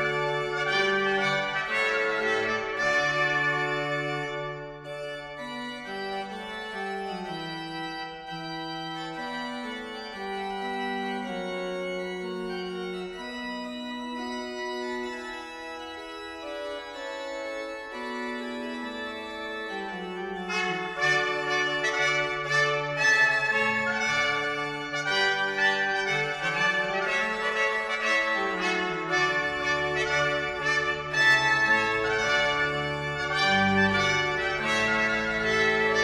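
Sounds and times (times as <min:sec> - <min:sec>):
trumpets: 0:00.0 - 0:04.9, 0:20.4 - 0:36.0
pipe organ chords: 0:00.0 - 0:36.0.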